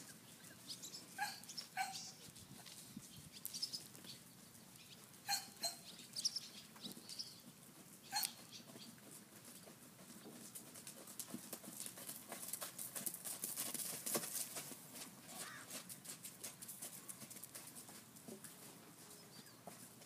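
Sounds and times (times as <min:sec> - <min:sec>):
horse hoofbeats on sand: 0:06.8 - 0:20.0.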